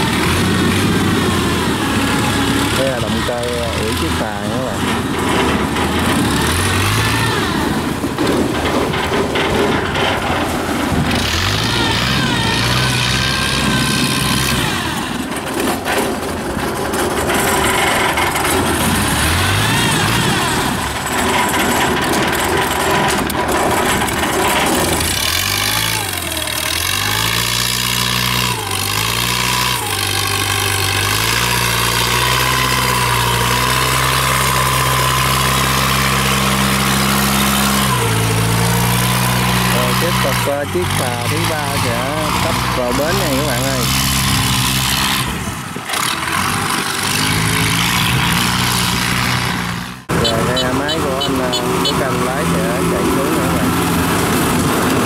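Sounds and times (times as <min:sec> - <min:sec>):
boat engine running: 0:00.0 - 0:55.0.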